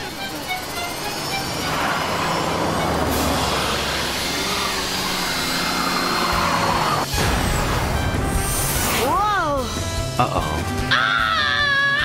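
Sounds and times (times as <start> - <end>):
car and motorbike engines speeding: 1.0 - 7.1.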